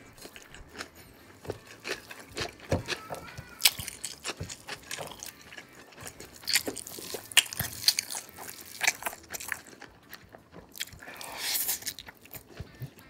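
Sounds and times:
crunchy bites and chewing: 0.0 - 13.0.

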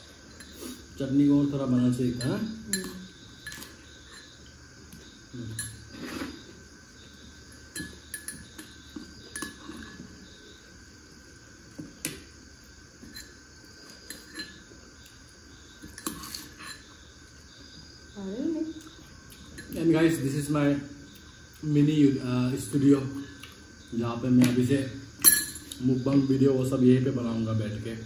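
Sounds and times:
faint high-pitched tone: 1.6 - 3.7
spoon clinking on metal and plates: 1.6 - 4.4, 7.7 - 10.0, 14.0 - 14.7, 25.2 - 25.9.

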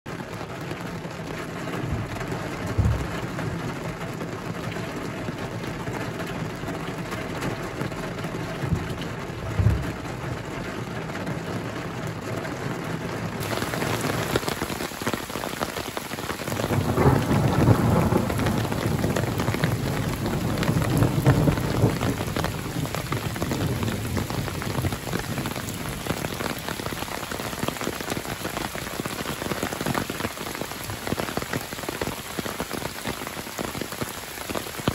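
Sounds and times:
heavy rain: 0.1 - 34.9
rain falling on lake water: 0.1 - 34.9
thunder rumbling: 1.7 - 4.7, 7.4 - 11.2, 13.4 - 31.4
low thumps: 1.9 - 3.4, 8.6 - 10.6.

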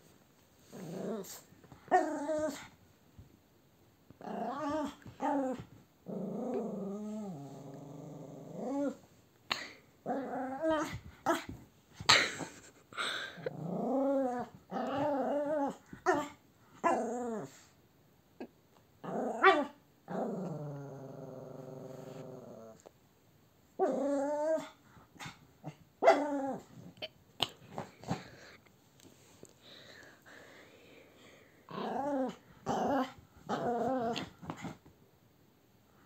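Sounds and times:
small dog growling: 0.6 - 2.7, 4.2 - 9.0, 10.0 - 11.5, 13.4 - 17.6, 19.0 - 22.9, 23.8 - 28.3, 31.7 - 34.8.

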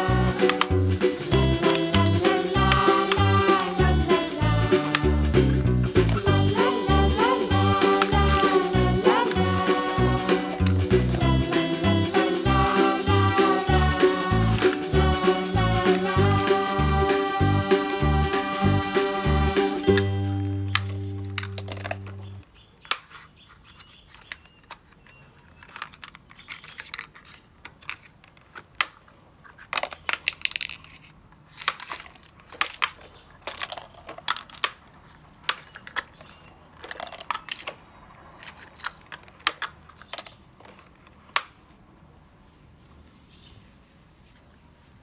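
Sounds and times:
plastic toys clattering: 0.0 - 6.4, 19.9 - 41.7.

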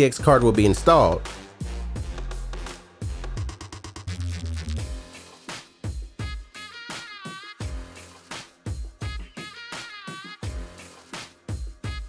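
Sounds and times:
drum beat: 0.2 - 4.1, 4.8 - 6.6, 8.6 - 10.8, 11.5 - 12.0.

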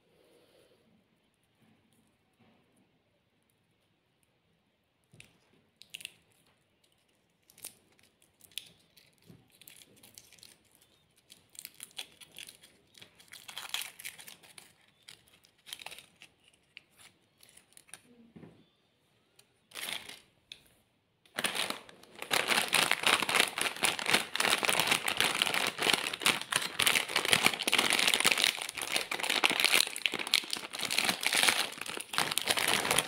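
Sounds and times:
foil wrapper crinkling: 7.4 - 18.0, 19.7 - 20.3, 21.3 - 33.0.

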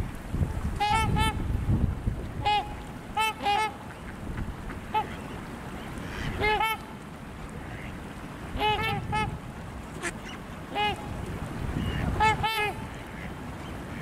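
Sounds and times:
swans honking: 0.8 - 1.4, 2.4 - 14.0.

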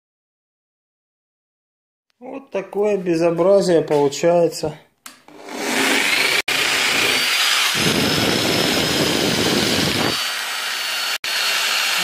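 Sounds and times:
rotary polisher whine: 5.3 - 12.0.

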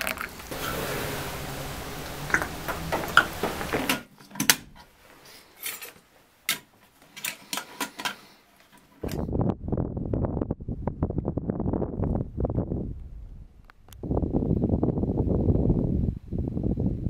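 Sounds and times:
steady hiss: 0.0 - 6.4.

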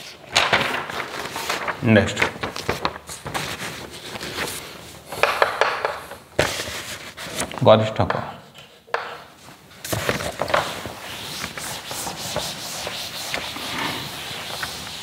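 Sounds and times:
duster rubbing on chalkboard: 10.6 - 15.0.

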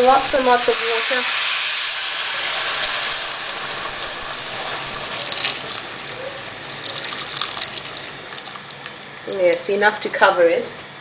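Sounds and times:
water pouring into a pot: 0.5 - 8.9.

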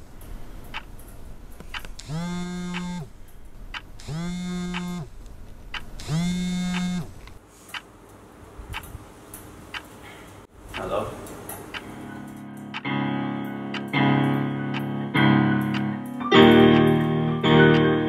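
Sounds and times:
phone vibrating: 2.0 - 3.1, 4.0 - 5.1, 6.0 - 7.2.

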